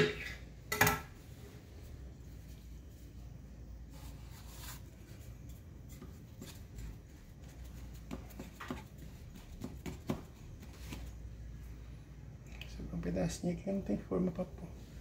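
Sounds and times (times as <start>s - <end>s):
hands patting dough: 4.4s - 11.3s.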